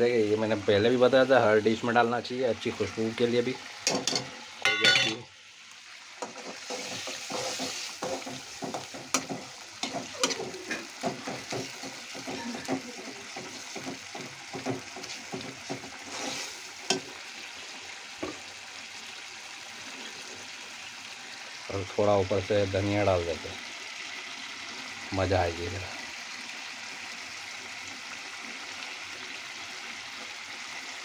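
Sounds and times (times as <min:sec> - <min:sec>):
gravy sizzling in a pan: 0:00.0 - 0:31.0
steel spoon scraping a pan: 0:06.2 - 0:17.2.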